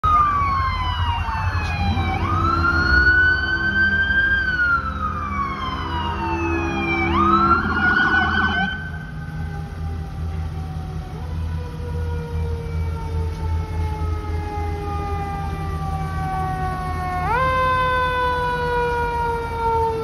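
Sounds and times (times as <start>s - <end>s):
low rumble: 0.0s - 12.3s
siren yelp warble: 0.0s - 20.0s
sirens wailing: 0.0s - 20.0s.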